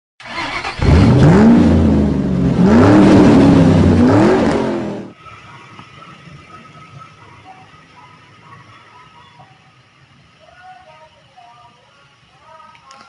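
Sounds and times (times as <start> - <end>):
car engine revving: 0.2 - 5.2.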